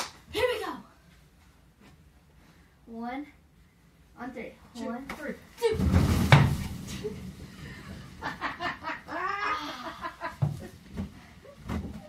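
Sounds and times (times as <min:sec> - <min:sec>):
dull thumps among balloons: 0:05.7 - 0:07.4
girl giggling and squealing: 0:08.6 - 0:10.4.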